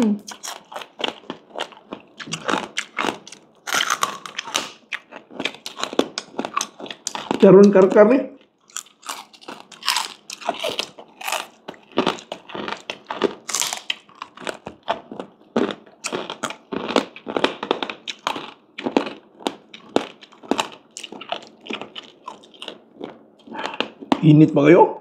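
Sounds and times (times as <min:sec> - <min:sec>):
crunchy food being chewed: 0:00.2 - 0:24.3.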